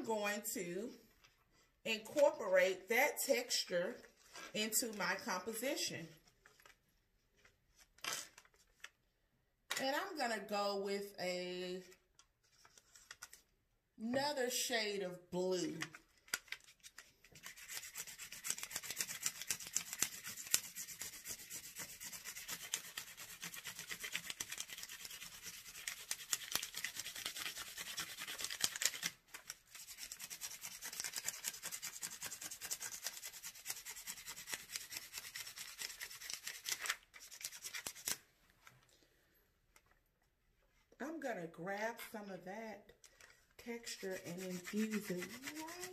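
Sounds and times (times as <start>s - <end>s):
pencil scratching on paper: 17.4s - 29.1s, 29.7s - 38.2s, 43.8s - 45.9s.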